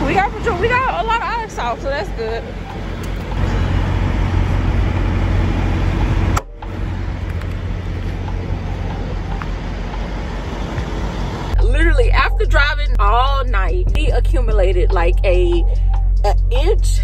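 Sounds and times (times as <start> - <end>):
truck engine idling: 0.0 - 13.4.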